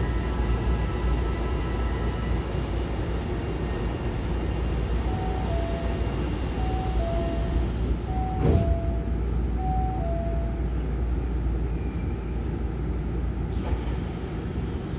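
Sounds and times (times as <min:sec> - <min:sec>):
low rumble of train: 0:00.0 - 0:14.9
train doors closing thud: 0:08.0 - 0:09.1
two-tone falling door chime: 0:08.1 - 0:09.1.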